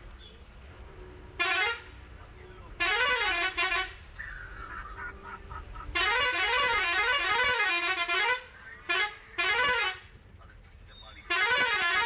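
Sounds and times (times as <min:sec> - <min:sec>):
bus musical horn: 0:01.1 - 0:02.0, 0:02.8 - 0:04.1, 0:05.9 - 0:10.2, 0:11.3 - 0:12.0.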